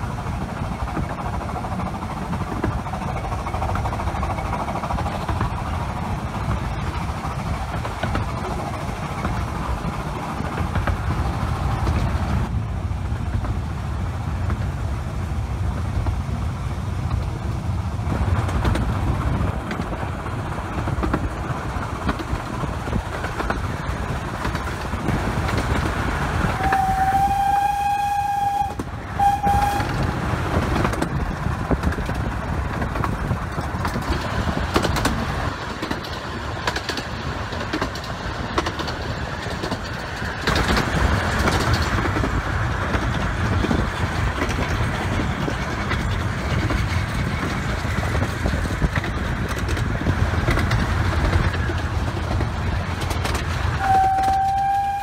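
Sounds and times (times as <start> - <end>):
steam train running: 0.0 - 55.0
steam train whistle: 26.6 - 30.0, 53.8 - 55.0.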